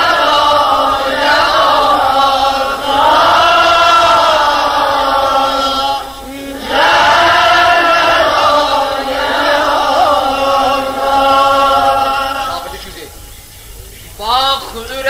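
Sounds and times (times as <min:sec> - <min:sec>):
voices chanting: 0:00.0 - 0:15.0.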